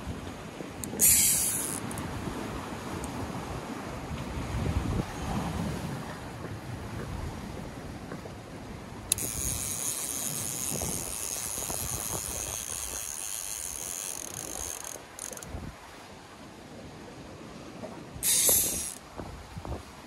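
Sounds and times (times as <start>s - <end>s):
wind rumble on microphone: 0.0s - 20.0s
fishing reel whirring: 0.8s - 2.1s, 9.1s - 15.6s, 18.2s - 19.0s.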